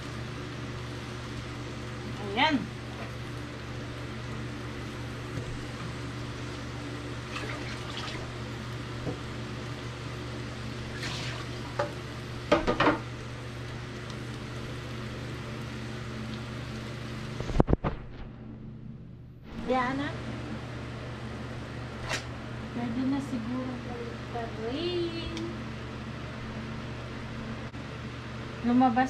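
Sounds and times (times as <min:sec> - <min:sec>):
squid sizzling on a grill pan: 0:08.3 - 0:17.4
clatter of turning food: 0:11.2 - 0:13.1.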